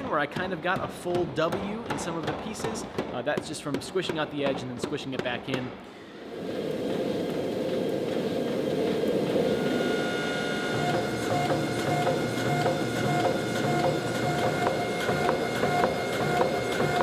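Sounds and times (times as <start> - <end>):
steady machine whine: 6.0 - 17.0.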